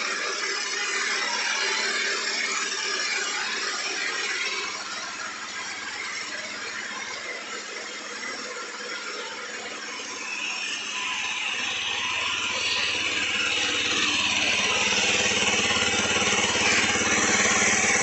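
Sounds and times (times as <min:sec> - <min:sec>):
motorcycle engine idling: 0:10.8 - 0:18.0.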